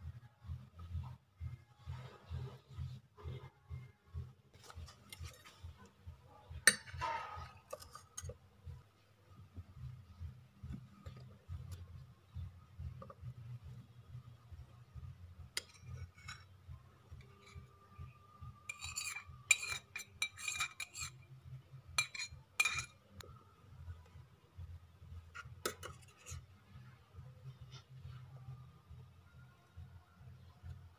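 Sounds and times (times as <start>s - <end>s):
low steady hum: 0.0s - 30.9s
metal spoon clinking on pan: 6.6s - 8.4s, 15.6s - 16.4s, 18.7s - 21.2s, 22.0s - 23.0s.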